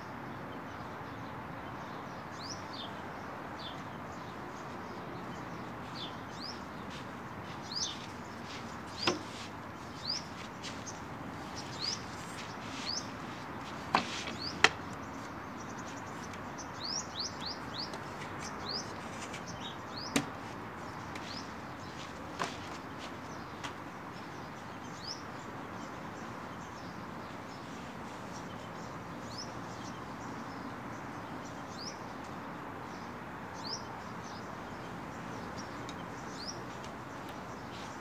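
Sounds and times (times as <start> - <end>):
small birds chirping: 0.2 - 38.0
wooden chair knocks: 9.0 - 9.3.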